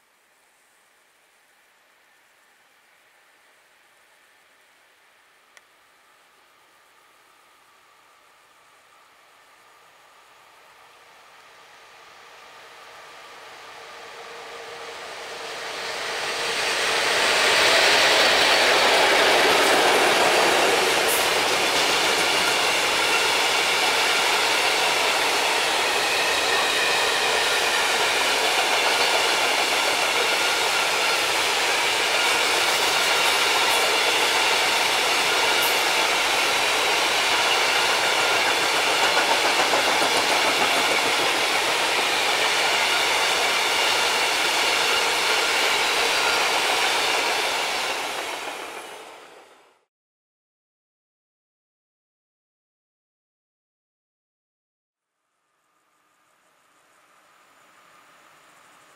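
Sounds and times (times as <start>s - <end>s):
train wheels rumbling on rails: 12.0s - 49.8s.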